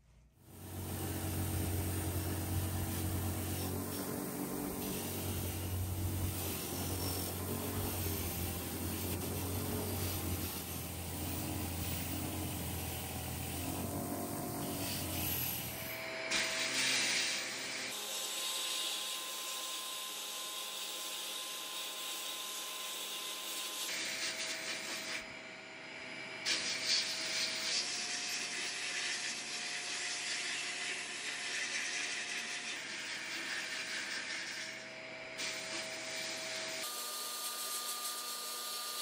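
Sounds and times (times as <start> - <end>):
power tool motor hum: 0.4 - 39.0
harsh hiss: 0.5 - 17.9.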